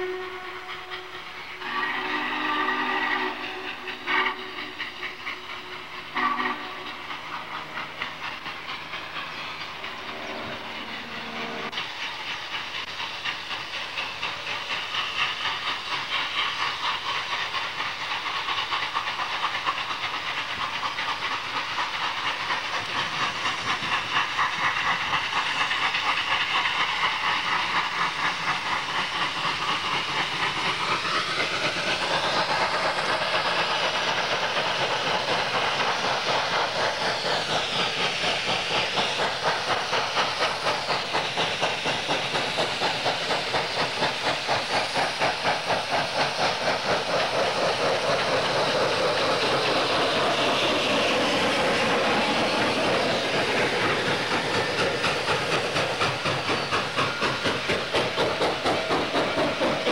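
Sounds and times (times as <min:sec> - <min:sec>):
steam whistle: 0:00.0 - 0:04.9, 0:06.1 - 0:07.0
steam hiss: 0:00.0 - 0:59.9
steam locomotive exhaust chuffs: 0:00.0 - 0:59.9.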